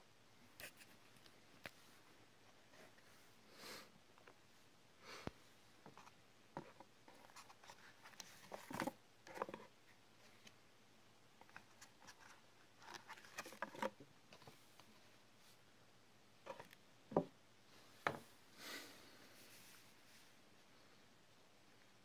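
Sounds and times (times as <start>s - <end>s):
paper and cardboard rustling: 6.6s - 9.7s, 11.4s - 14.5s.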